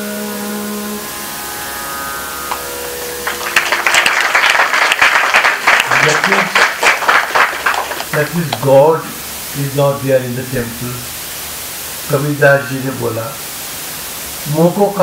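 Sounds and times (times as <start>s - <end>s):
held musical drone: 0.0s - 5.1s
audience applauding: 2.5s - 8.7s.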